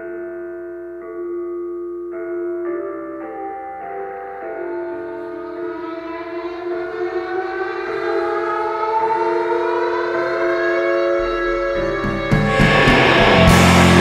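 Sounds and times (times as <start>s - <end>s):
rock band sustained drone: 4.7s - 14.0s
low bass note: 11.2s - 14.0s
drums crashing: 11.8s - 14.0s.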